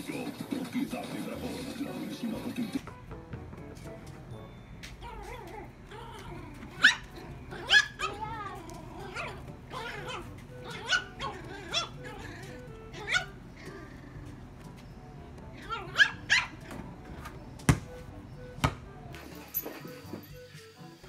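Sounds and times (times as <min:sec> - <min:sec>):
puppy yapping: 0:05.0 - 0:14.3, 0:15.5 - 0:17.4.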